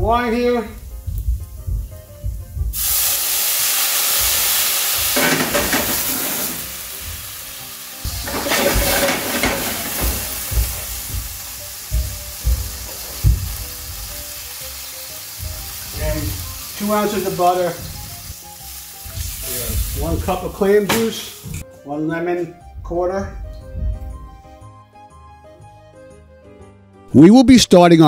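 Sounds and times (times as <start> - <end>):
wine sizzling in hot pan: 0.6 - 21.6.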